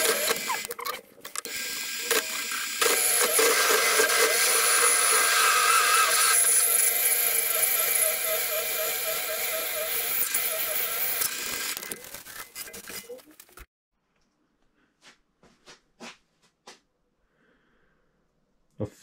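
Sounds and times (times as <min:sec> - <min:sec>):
drill cutting metal: 0:00.0 - 0:00.8, 0:01.4 - 0:13.0.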